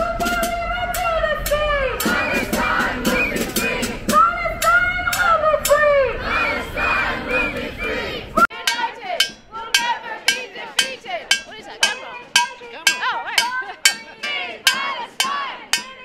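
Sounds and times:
voices: 0.0 - 16.0
crowd chanting: 1.0 - 16.0
stick beating a metal pan: 8.6 - 16.0.

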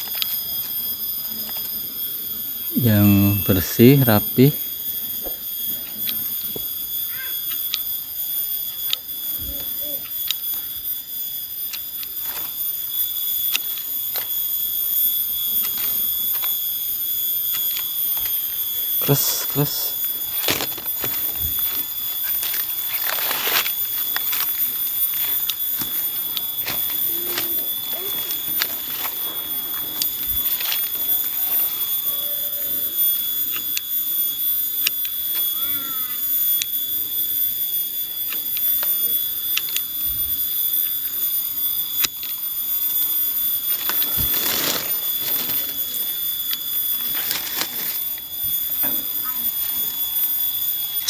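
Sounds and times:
steady high-pitched drone: 0.0 - 51.0
leaf rustling: 17.4 - 31.8, 43.6 - 48.3
pruning shears snipping branches: 19.4 - 31.4, 43.8 - 45.8.

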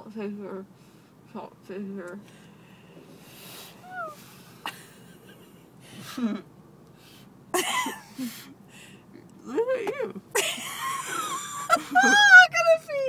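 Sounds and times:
breathy wheezing laughter: 4.6 - 6.5.

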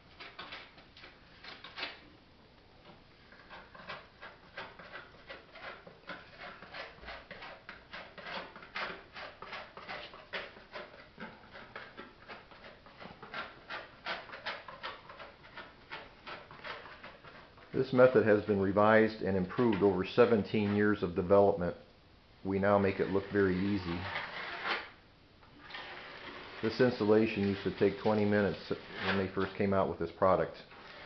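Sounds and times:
trowel scraping epoxy: 3.3 - 21.1, 22.6 - 25.0, 25.6 - 29.8, 30.7 - 31.0.

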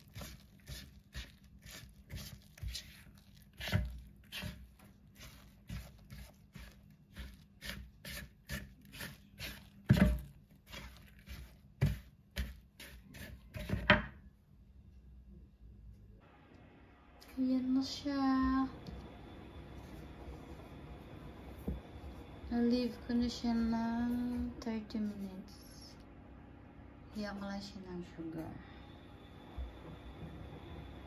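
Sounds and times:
spatula scraping dough in bowl: 0.0 - 14.0.

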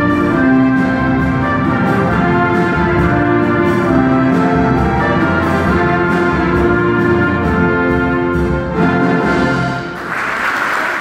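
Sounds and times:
orchestra playing chords: 0.0 - 11.0
applause: 10.0 - 11.0.

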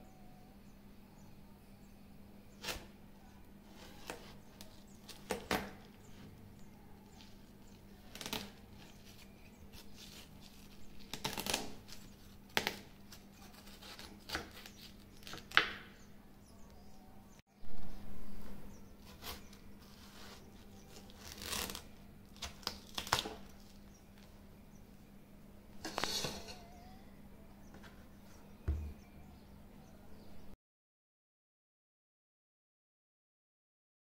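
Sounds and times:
knife cutting watermelon: 2.6 - 6.4, 7.0 - 16.0, 19.0 - 23.8, 25.8 - 27.0.

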